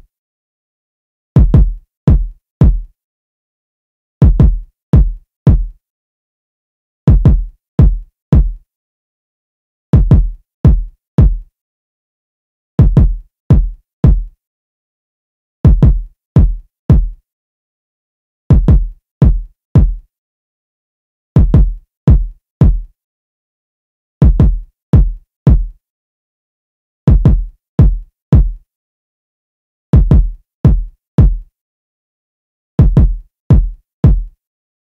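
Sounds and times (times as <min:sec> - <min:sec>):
electronic kick drum loop: 0:01.4 - 0:02.9, 0:04.2 - 0:05.7, 0:07.1 - 0:08.6, 0:10.0 - 0:11.4, 0:12.8 - 0:14.3, 0:15.7 - 0:17.2, 0:18.5 - 0:20.0, 0:21.4 - 0:22.9, 0:24.2 - 0:25.7, 0:27.1 - 0:28.6, 0:30.0 - 0:31.4, 0:32.8 - 0:34.3.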